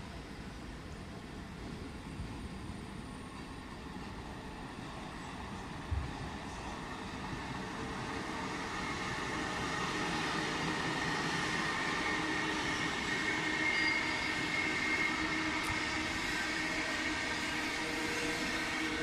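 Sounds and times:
train wheels rumbling on rail: 0.0 - 19.0
high-pitched wheel squeal: 11.3 - 19.0.

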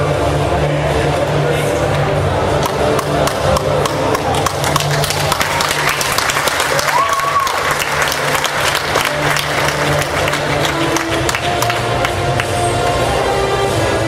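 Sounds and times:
audience applauding: 3.0 - 12.6.

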